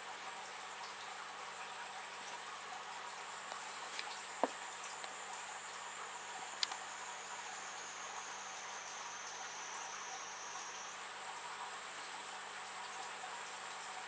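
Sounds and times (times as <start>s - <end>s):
steady hiss: 2.1s - 14.0s
high-pitched whine: 4.2s - 11.0s
click: 6.6s - 6.8s.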